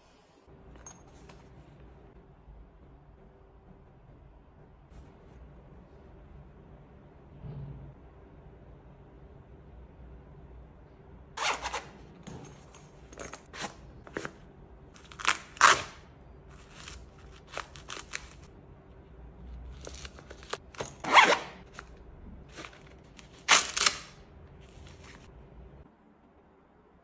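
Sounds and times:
velcro tearing: 15.0 - 16.0, 23.2 - 24.2.

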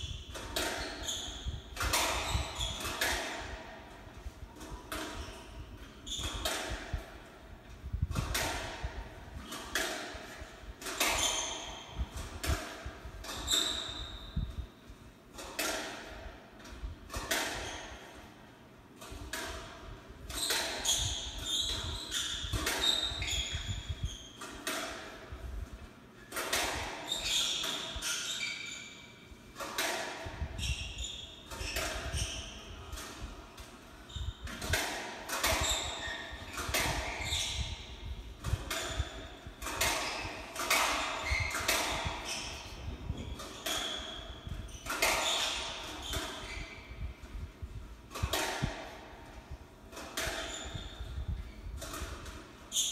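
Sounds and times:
shoes squeaking on wooden floor: 0.0 - 2.9, 11.0 - 12.0, 13.2 - 14.4, 20.4 - 24.4, 27.1 - 29.1, 35.6 - 37.9, 38.8 - 47.1, 50.4 - 51.3.

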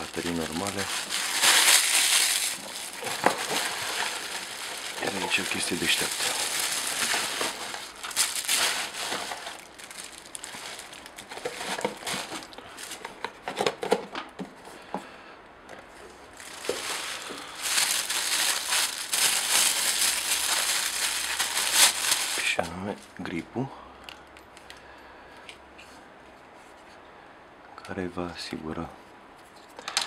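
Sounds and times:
bubble wrap and plastic crinkling: 0.0 - 13.9, 16.2 - 23.2.

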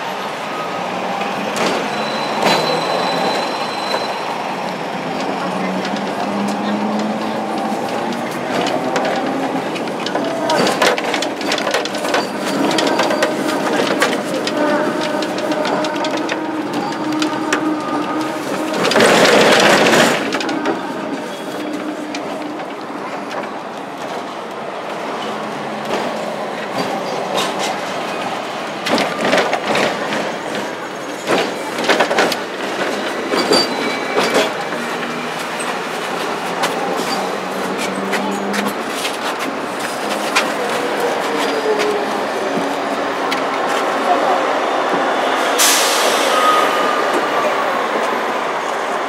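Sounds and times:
tram rolling on track: 0.0 - 49.0
running gear clicks and knocks: 5.2 - 23.6.

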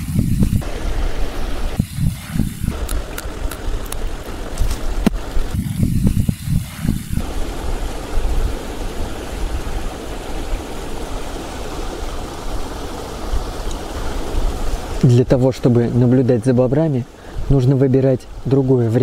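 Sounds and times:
low rumble: 0.0 - 8.6
rushing hiss: 0.0 - 15.2
wind gusts: 0.0 - 19.0.

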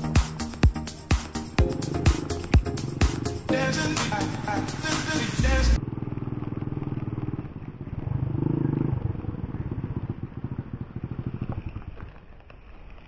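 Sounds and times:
small engine puttering: 5.8 - 13.0.

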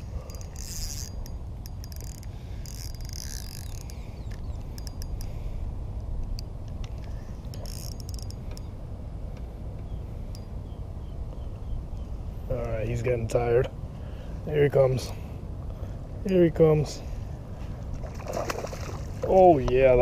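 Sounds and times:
fishing reel drag buzzing: 0.0 - 5.4, 7.0 - 8.7
reel clicking as cranked: 0.3 - 5.3, 7.5 - 8.6.

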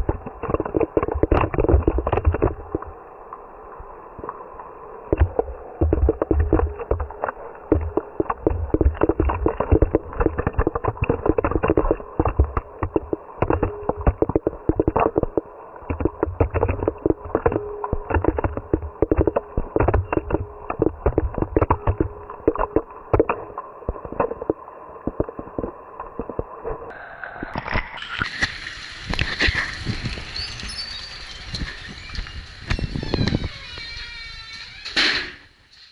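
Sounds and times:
rain tapping on camera housing: 0.0 - 3.0, 5.1 - 26.9.

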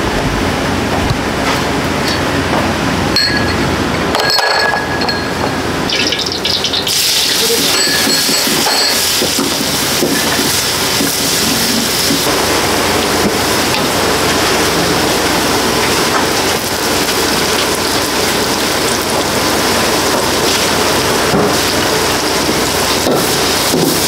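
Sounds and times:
metal utensils clinking: 4.2 - 9.4
loud steady hiss: 6.8 - 24.0.

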